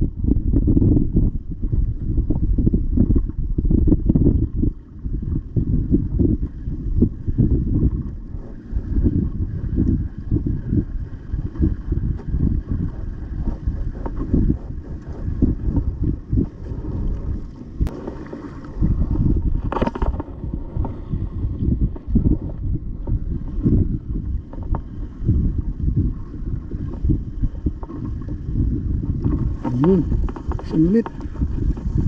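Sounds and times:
wind buffeting microphone: 0.0s - 32.0s.

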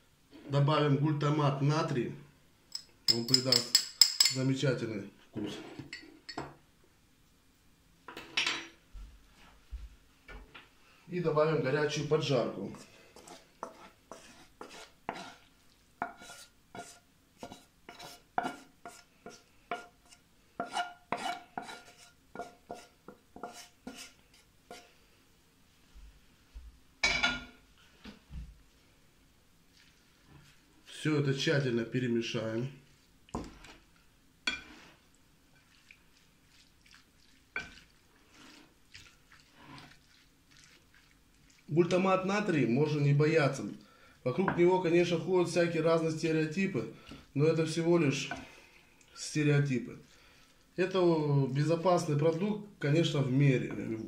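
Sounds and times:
wooden spatula scraping pan: 12.0s - 24.9s, 32.8s - 35.7s, 37.5s - 42.0s
wet squelching and dripping: 35.6s - 41.7s.

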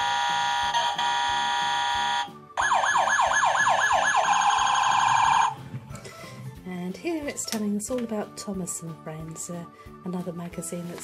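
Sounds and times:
toy electronic siren: 0.0s - 5.6s.

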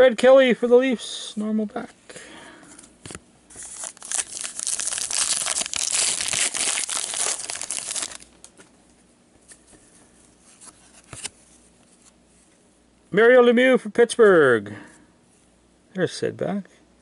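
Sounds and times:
wrapper crinkling: 3.6s - 8.4s.

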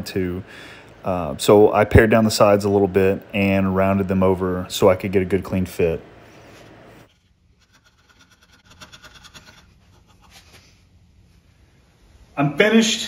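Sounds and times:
chisel scraping wood: 7.1s - 10.6s.

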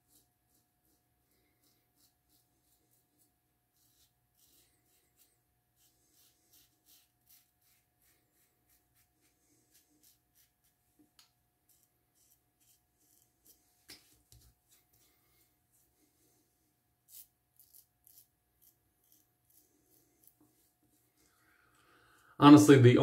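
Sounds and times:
razor scraping stubble: 0.1s - 10.8s, 11.6s - 15.0s, 17.0s - 21.0s.

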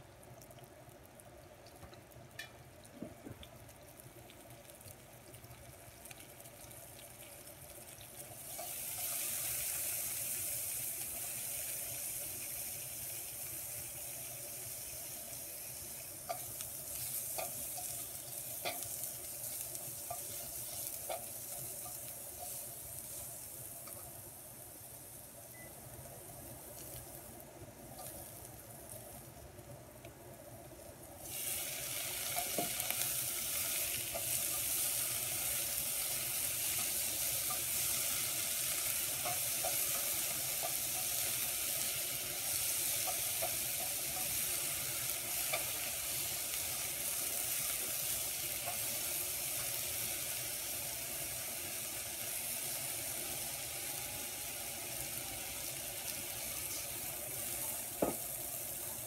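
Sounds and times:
mushrooms sizzling in hot oil: 0.0s - 59.0s
spatula scraping and tapping pan: 18.6s - 22.7s.

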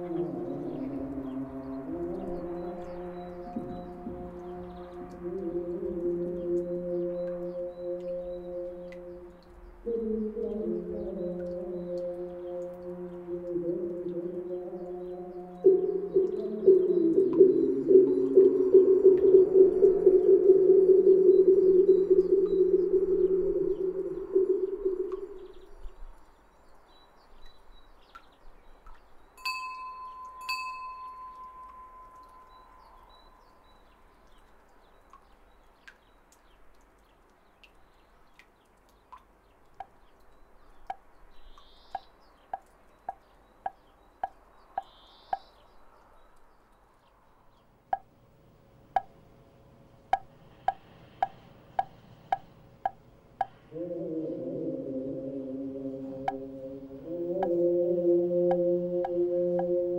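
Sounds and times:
hollow knocks: 3.6s - 4.5s
wind bell ringing: 29.4s - 33.0s.

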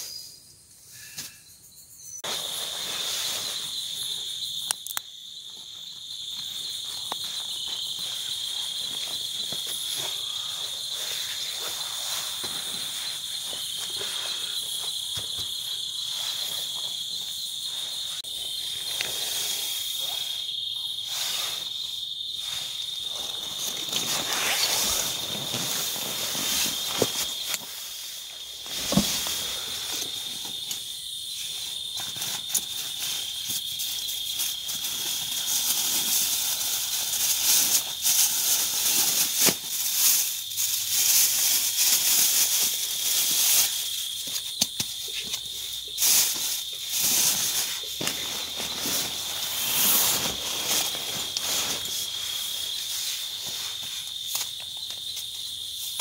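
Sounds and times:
background hiss: 0.0s - 56.0s
insects trilling: 0.0s - 56.0s.

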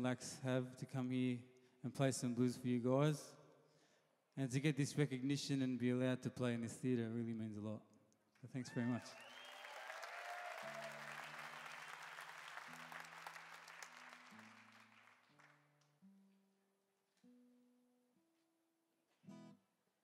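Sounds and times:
applause: 8.6s - 15.9s
acoustic guitar picked softly: 15.2s - 19.7s.

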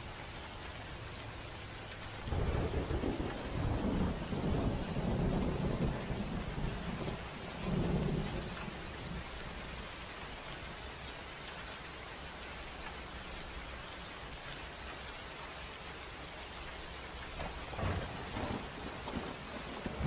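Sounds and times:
heavy rain on a tent: 0.0s - 20.0s
rolling thunder: 2.2s - 9.2s, 17.3s - 20.0s.

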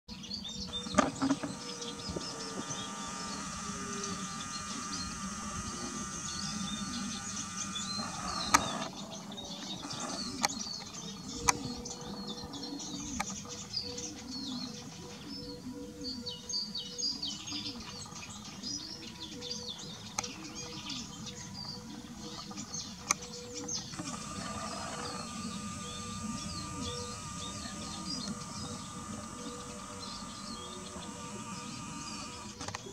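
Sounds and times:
songbirds chirping: 0.1s - 32.9s
steady high whine: 0.6s - 9.0s, 19.8s - 32.9s.

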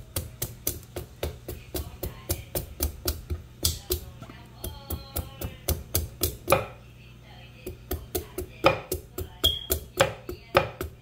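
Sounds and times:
knife chopping on wooden board: 4.7s - 6.8s, 7.7s - 11.0s.

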